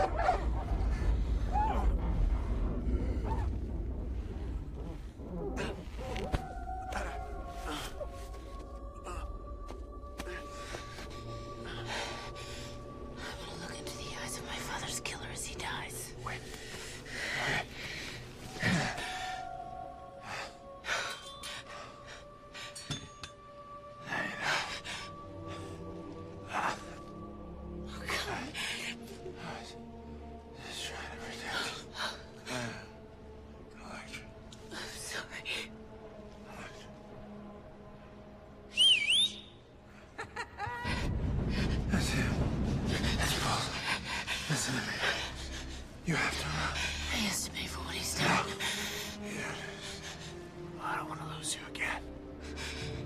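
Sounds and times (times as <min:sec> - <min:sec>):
soft film score music: 0:00.0 - 0:53.0
sharp whistle: 0:38.8 - 0:39.6.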